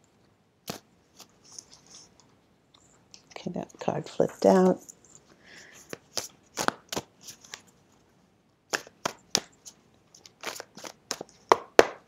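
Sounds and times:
cards being shuffled: 5.7s - 7.7s, 8.7s - 11.6s.

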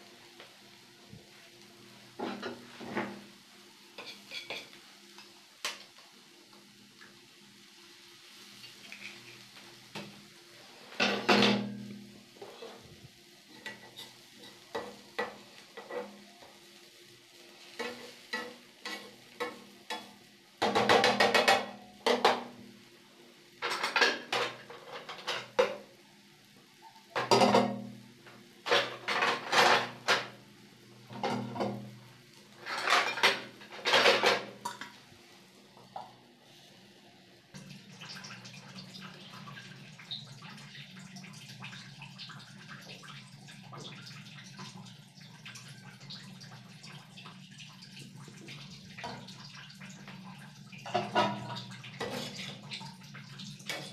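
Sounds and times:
metal spatula scraping a pan: 4.0s - 4.8s, 12.4s - 12.9s, 13.5s - 16.2s, 32.5s - 34.8s, 50.8s - 52.6s.

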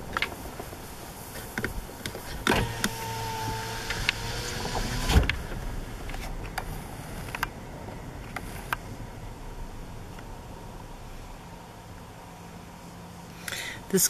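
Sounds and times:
car interior vehicle noise: 0.0s - 14.0s
thin whining tone: 2.4s - 13.6s.

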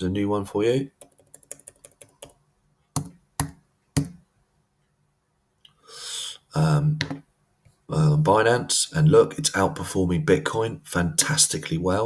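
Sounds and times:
man speaking: 0.0s - 1.0s, 6.2s - 7.2s, 7.9s - 12.0s.

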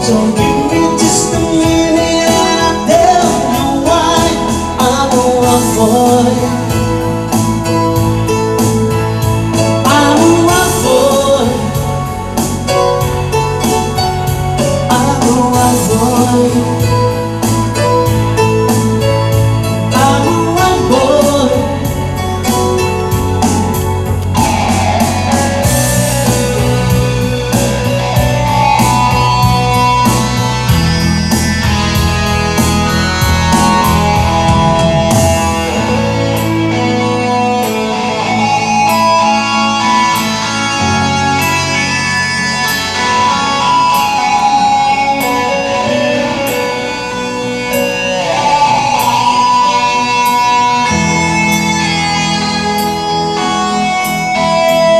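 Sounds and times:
bass line: 0.0s - 54.9s
drums: 0.0s - 54.9s
electric guitar: 0.0s - 54.9s
keyboards: 0.0s - 54.9s.

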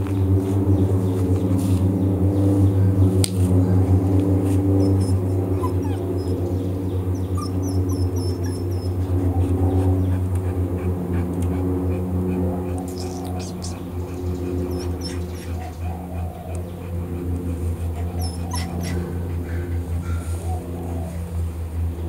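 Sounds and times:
low hum: 0.0s - 22.0s
puppy whimpering: 4.7s - 12.0s, 12.7s - 21.2s.

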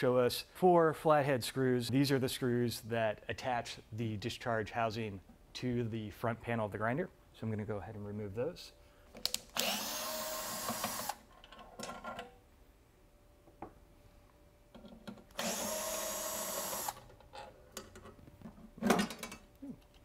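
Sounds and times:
electric screwdriver motor whining: 9.6s - 11.2s, 15.4s - 17.0s.

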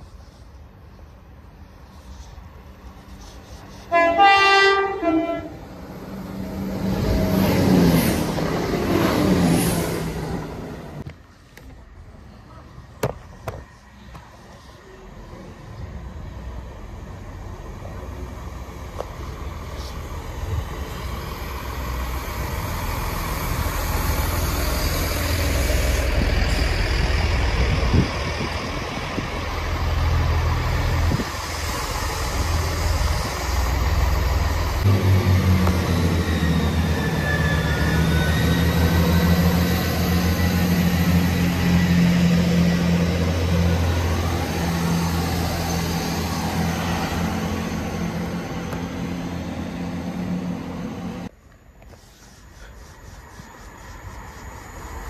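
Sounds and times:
diesel train engine: 0.0s - 55.0s
train wheels on rails: 1.8s - 11.9s, 12.5s - 55.0s
faint high squeal: 36.1s - 39.5s.

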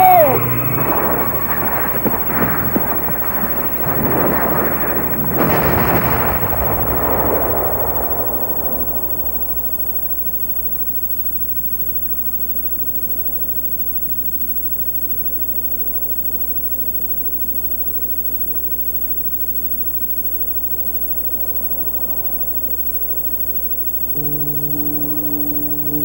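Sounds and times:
steady rumbling noise: 0.0s - 10.9s
constant low hum: 0.0s - 11.9s.

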